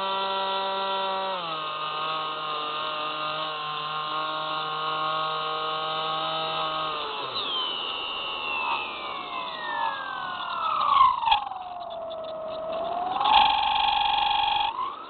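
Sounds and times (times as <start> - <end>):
high whine gliding downward: 0.0 - 15.0
model plane motor buzzing: 0.0 - 15.0.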